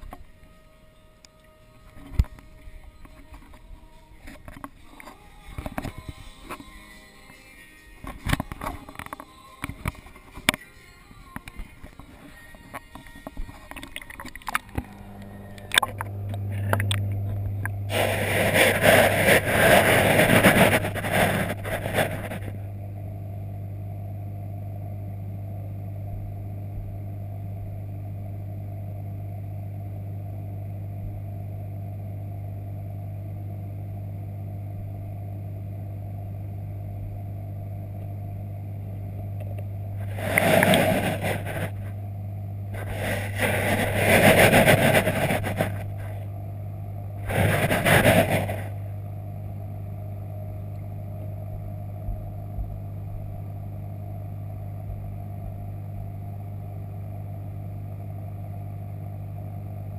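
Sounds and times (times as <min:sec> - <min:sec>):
low hum of tank equipment: 0:08.0 - 0:59.9
water splashing: 0:13.4 - 0:19.7.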